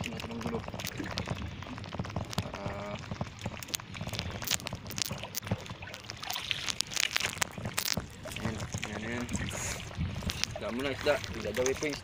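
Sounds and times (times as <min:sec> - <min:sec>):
water splashing against boat: 0:00.0 - 0:12.0.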